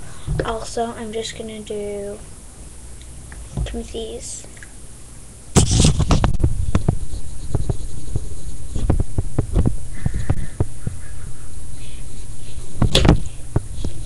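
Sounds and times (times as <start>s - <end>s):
microphone handling rumble: 5.5s - 14.0s.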